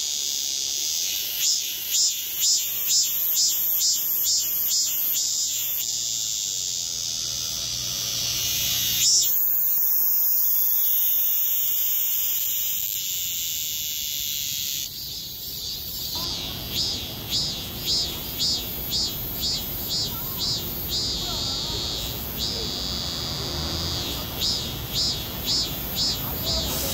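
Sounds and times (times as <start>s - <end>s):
cicada pulsing call: 0.0s - 26.9s
cicadas buzzing: 0.0s - 26.9s.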